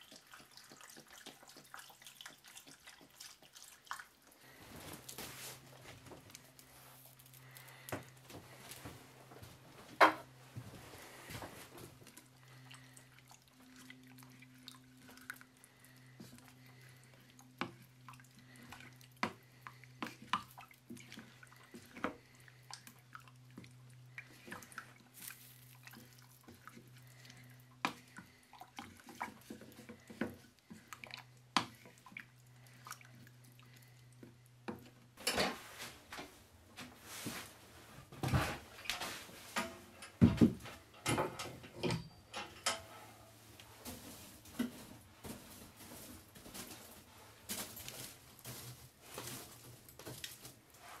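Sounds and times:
low steady hum: 0:04.2 - 0:51.0
wooden spoon stirring stew: 0:12.0 - 0:34.9.

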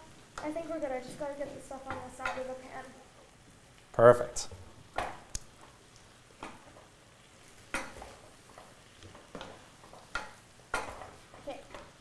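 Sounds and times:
wooden spoon scraping frying pan: 0:05.7 - 0:12.0.

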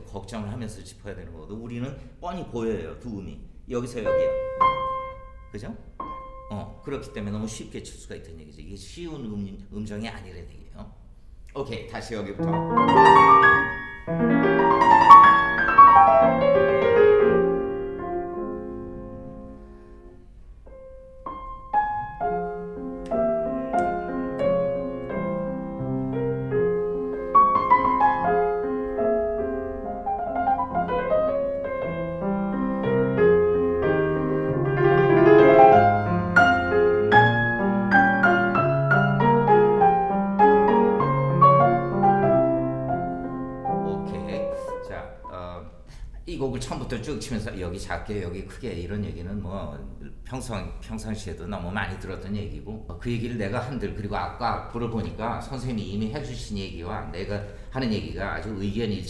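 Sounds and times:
classical piano playing: 0:03.8 - 0:08.0, 0:12.4 - 0:45.8.

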